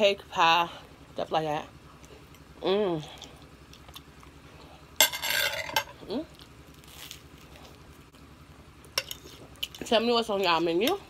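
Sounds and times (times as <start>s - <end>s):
bread crunching while eating: 6.3s - 8.0s.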